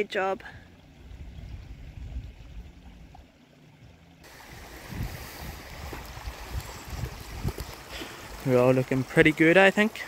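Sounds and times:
wind blowing across microphone: 0:01.1 - 0:03.2, 0:04.3 - 0:08.4.

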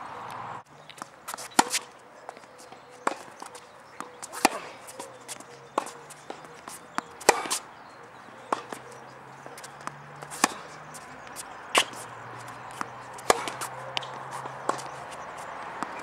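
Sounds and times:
tennis ball pocks off racquet and court: 0:00.9 - 0:01.9, 0:03.0 - 0:16.0.

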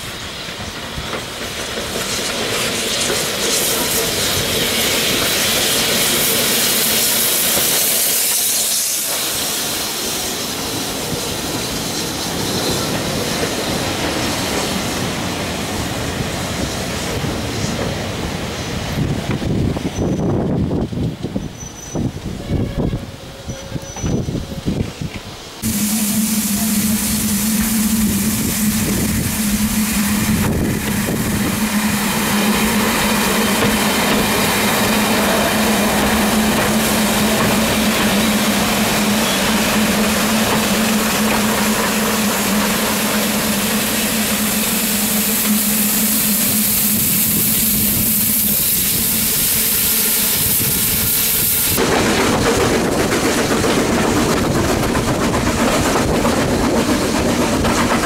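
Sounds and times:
train carriage interior rumble: 0:00.0 - 0:58.0
train wheels rushing on rails: 0:00.0 - 0:58.0
diesel train engines humming: 0:23.1 - 0:58.0.

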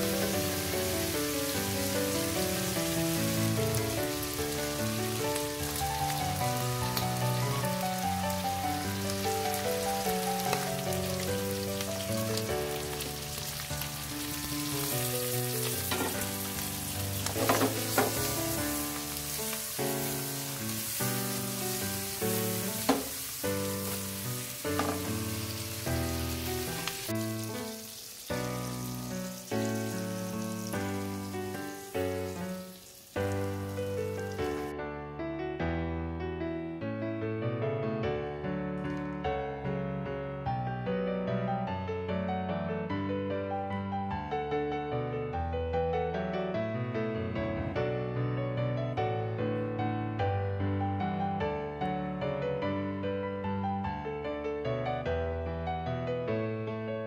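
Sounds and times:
food sizzling in a wok: 0:00.0 - 0:34.7
background music: 0:00.0 - 0:34.8.

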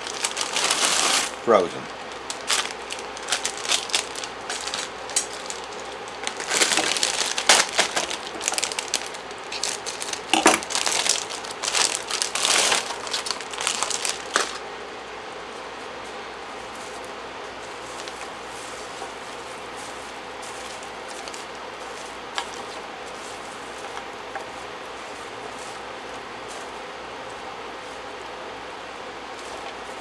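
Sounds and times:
plastic bags crinkling: 0:00.0 - 0:14.6
frozen pods clattering into pan: 0:02.2 - 0:14.6.

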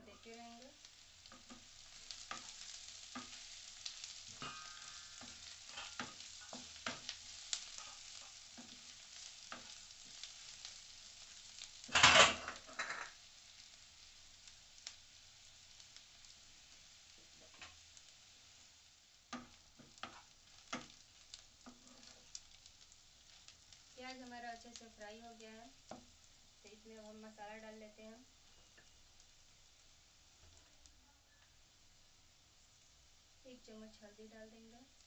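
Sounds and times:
onions sizzling in a pan: 0:00.0 - 0:35.0
spatula tapping on pan: 0:04.3 - 0:07.2, 0:19.3 - 0:21.0.

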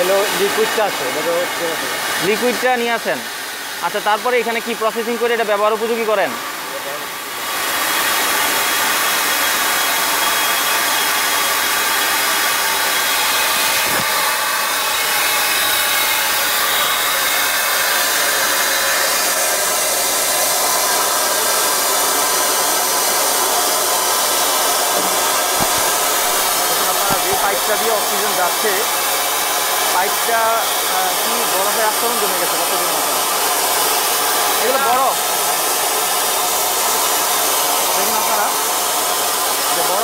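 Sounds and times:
liquid oxygen hissing through hose: 0:23.3 - 0:28.9.

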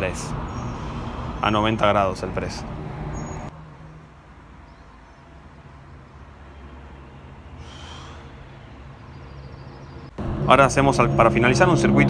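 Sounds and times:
breathy exhale: 0:00.5 - 0:01.4, 0:07.6 - 0:08.4.

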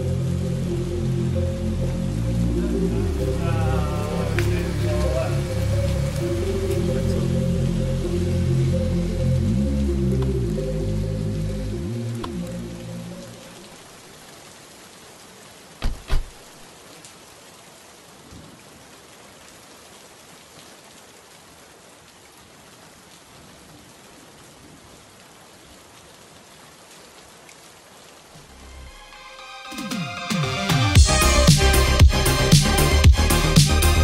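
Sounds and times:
rain hissing: 0:00.0 - 0:34.0
car doors shutting: 0:15.8 - 0:16.4.

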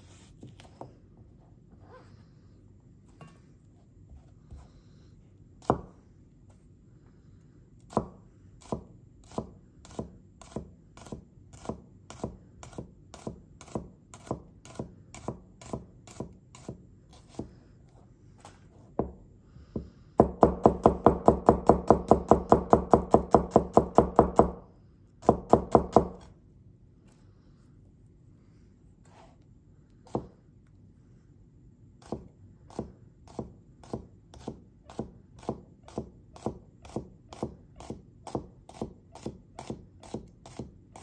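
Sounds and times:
knife slicing onion on board: 0:05.6 - 0:06.0, 0:07.8 - 0:17.6, 0:20.2 - 0:24.6, 0:25.2 - 0:26.3, 0:30.1 - 0:30.4, 0:32.0 - 0:41.0
fast knife chopping: 0:32.0 - 0:41.0.

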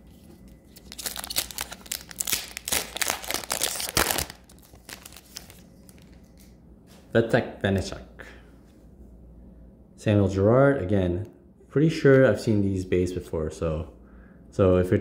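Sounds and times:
wrapper tearing and crinkling: 0:00.6 - 0:06.2.

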